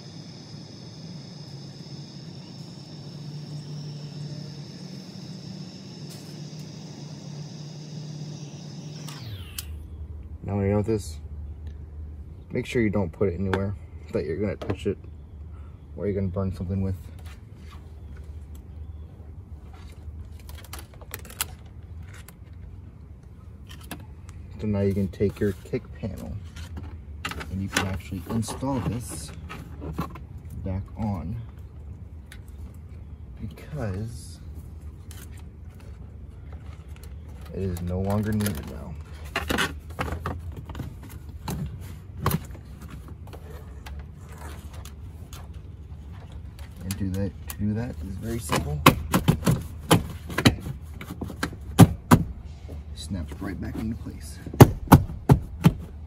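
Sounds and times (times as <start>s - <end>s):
low hum: 0.0s - 10.3s.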